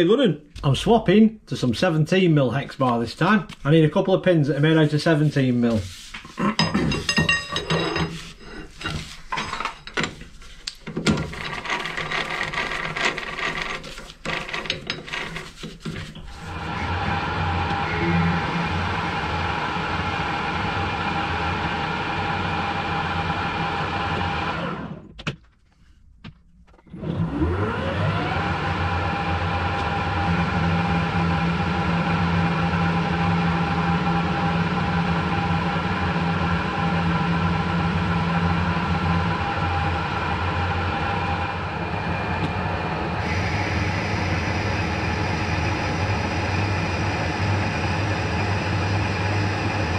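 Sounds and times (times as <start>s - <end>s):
chuck key grinding metal: 10.9s - 16.0s
lathe running with steady hum: 10.9s - 25.0s, 27.2s - 49.9s.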